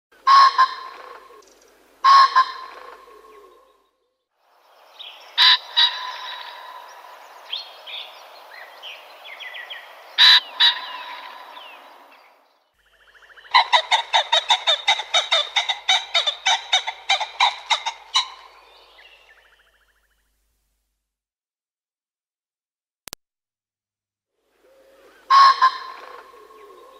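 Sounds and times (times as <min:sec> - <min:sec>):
pheasant calling: 0:00.2 - 0:03.9, 0:04.8 - 0:20.3, 0:24.6 - 0:26.9
faint bird calls: 0:00.2 - 0:20.4, 0:24.5 - 0:26.9.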